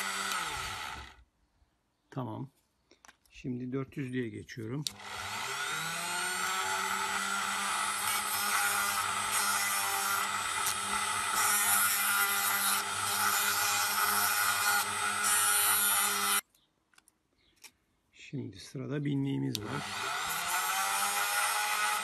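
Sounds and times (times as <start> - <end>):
rotary tool whining: 0.0 - 1.2, 4.9 - 16.4.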